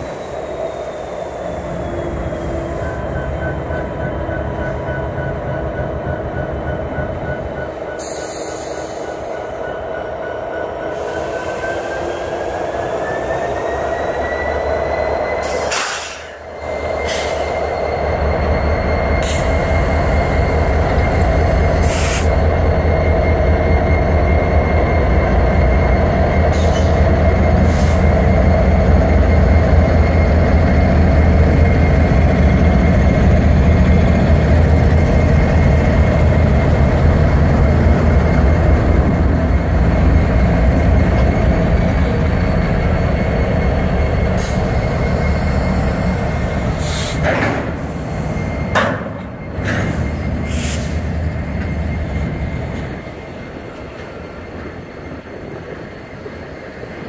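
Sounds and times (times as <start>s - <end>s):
high wheel squeal: 0.0s - 55.1s
diesel locomotive engine humming: 0.0s - 57.0s.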